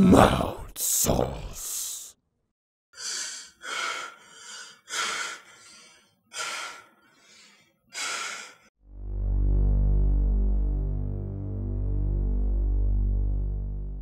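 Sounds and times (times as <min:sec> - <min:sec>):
man breathing hard: 0:03.0 - 0:08.7.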